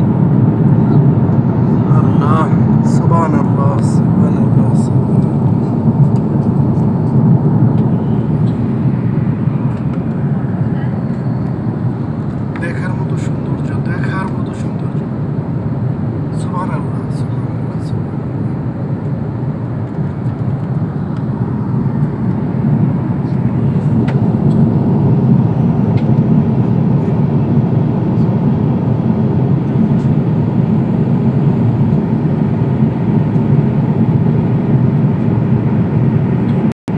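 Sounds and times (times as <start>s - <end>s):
airliner cabin rumble: 0.0s - 36.9s.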